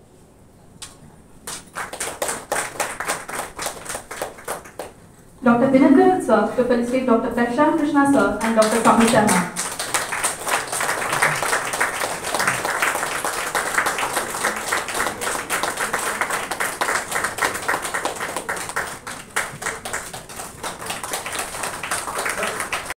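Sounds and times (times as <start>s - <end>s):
audience applauding: 1.4s - 5.0s, 8.2s - 22.9s.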